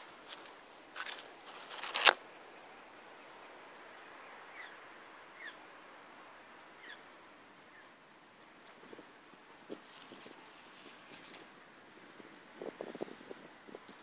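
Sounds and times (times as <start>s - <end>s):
rustling and crackling: 0.0s - 2.2s, 9.7s - 11.6s
low steady hiss: 0.0s - 14.0s
small birds chirping: 2.3s - 5.6s, 6.7s - 7.1s.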